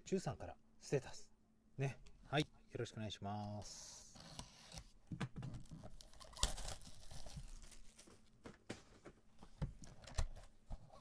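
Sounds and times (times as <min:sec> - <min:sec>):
shrink wrap tearing and crinkling: 0:05.6 - 0:08.2.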